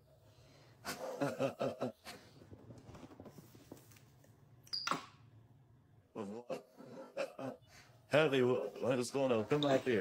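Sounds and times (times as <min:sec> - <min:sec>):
faint clicks and rustles: 0:02.3 - 0:04.4.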